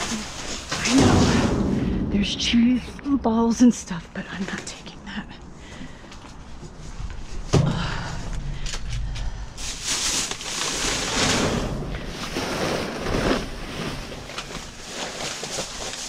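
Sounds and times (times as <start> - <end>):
plastic bags rustling: 0.0 - 1.5, 8.7 - 16.0.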